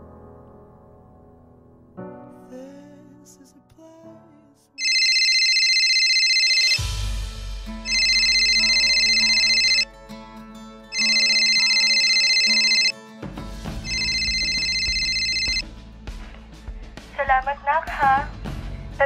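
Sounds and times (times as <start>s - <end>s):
electronic phone ringtone: 4.8s - 6.8s, 7.9s - 9.9s, 10.9s - 13.0s, 13.8s - 15.6s.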